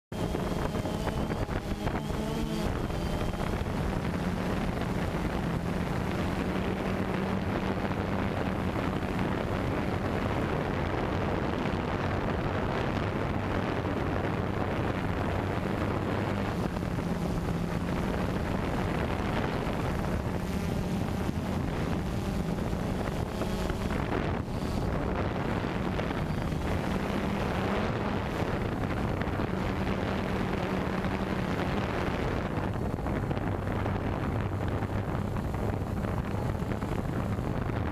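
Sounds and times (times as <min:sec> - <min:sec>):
drone motors humming: 0:00.1 - 0:37.9
wind on microphone: 0:00.1 - 0:37.9.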